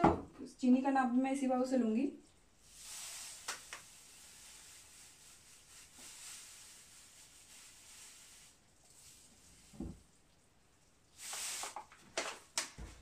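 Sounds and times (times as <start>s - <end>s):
sugar pouring into glass bowl: 2.6s - 9.8s
paper bag rustling: 2.7s - 9.9s.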